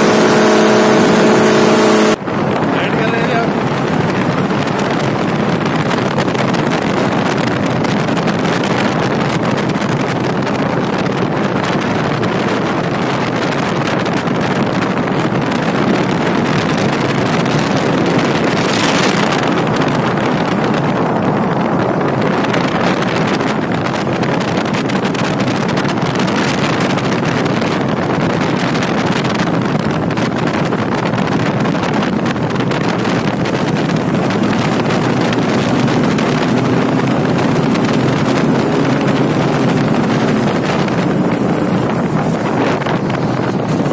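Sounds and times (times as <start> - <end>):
paramotor engine and propeller: 0.0 - 43.9
wind buffeting microphone: 0.0 - 43.9.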